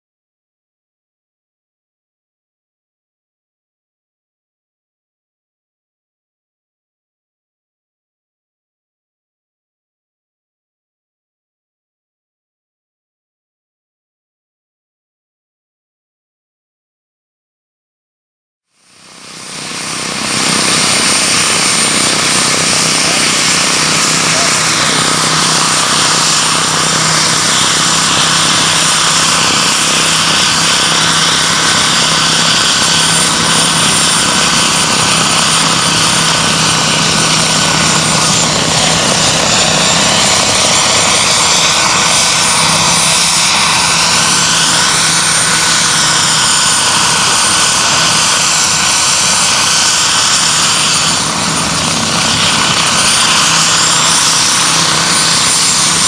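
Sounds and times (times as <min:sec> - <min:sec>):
model helicopter turbine and rotor roar: 0:18.7 - 0:56.0
thin high whine: 0:19.2 - 0:56.0.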